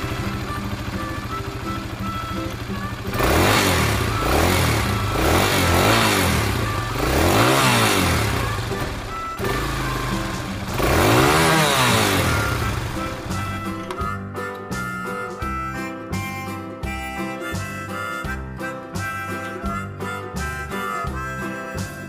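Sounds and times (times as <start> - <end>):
motorcycle engine revving: 0.0 - 14.1.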